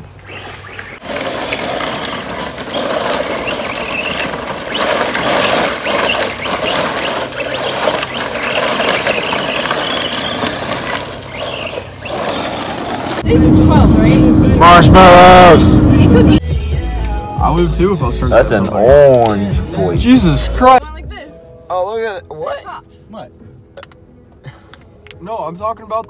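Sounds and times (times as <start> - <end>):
tyres crunching gravel: 0.2 - 16.2.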